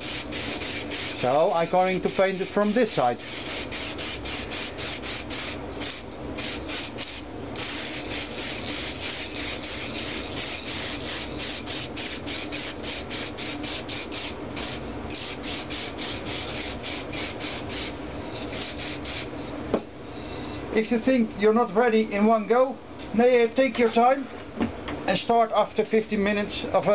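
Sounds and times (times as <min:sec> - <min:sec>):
spray paint can hissing: 0:00.0 - 0:01.3, 0:03.2 - 0:19.3.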